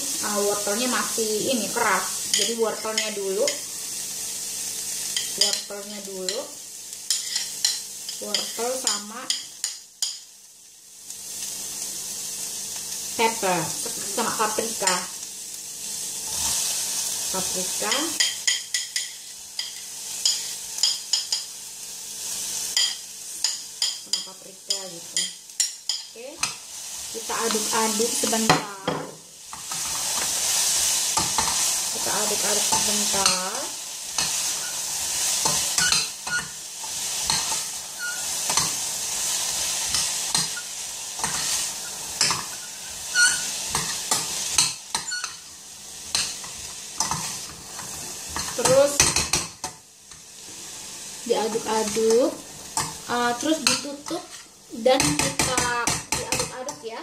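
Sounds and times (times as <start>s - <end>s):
onion sizzling in hot oil: 0.0s - 57.0s
metal spoon clinking: 35.4s - 36.5s.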